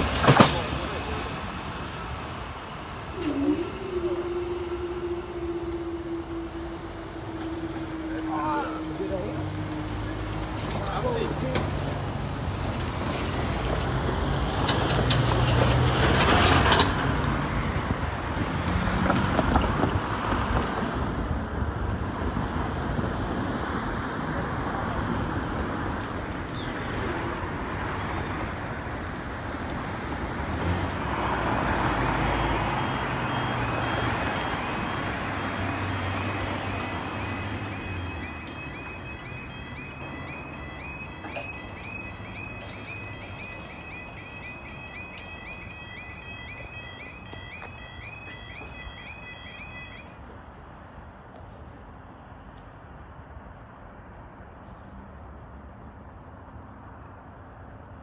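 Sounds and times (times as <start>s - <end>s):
cars passing: 0.0s - 50.9s
level crossing warning alarm: 2.4s - 11.6s, 31.0s - 50.2s.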